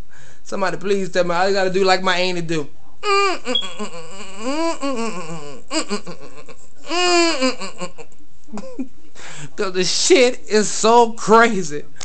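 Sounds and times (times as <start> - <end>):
man making mock crying wails: 3.0 - 8.0.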